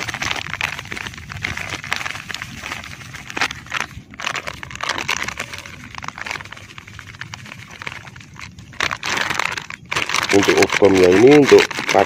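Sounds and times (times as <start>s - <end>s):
paper bag crinkling: 0.0s - 12.0s
pellets ticking in steel bowl: 7.2s - 12.0s.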